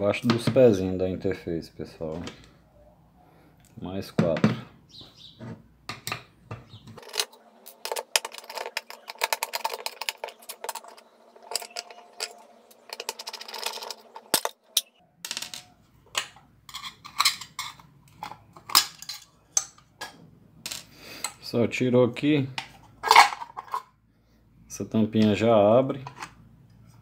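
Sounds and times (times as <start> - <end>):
screwdriver scraping and clicking: 7.0 - 14.9
small screws clinking: 7.0 - 15.7.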